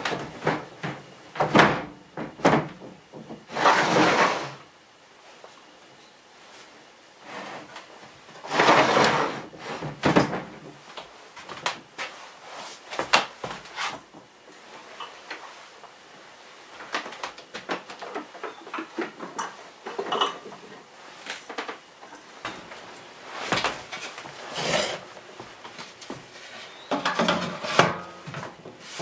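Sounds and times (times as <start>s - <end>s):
kitchen items clinking and knocking: 17.6s - 20.9s, 26.8s - 28.5s.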